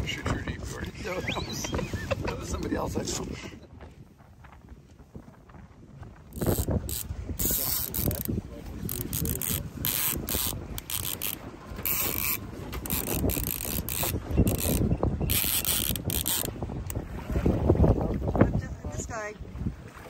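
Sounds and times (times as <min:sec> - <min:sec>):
fishing reel ratcheting: 0:06.4 - 0:16.5.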